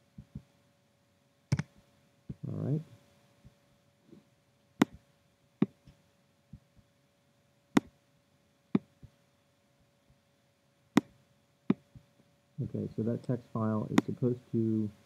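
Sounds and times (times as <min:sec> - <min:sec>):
faint electrical hum: 0:00.0 - 0:15.0
mouse and keyboard clicks: 0:01.5 - 0:01.7.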